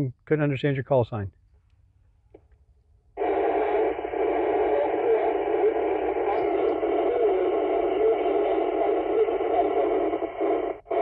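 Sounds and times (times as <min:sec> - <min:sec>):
faint voice over radio: 0:03.2 - 0:11.0
radio static: 0:03.2 - 0:11.0.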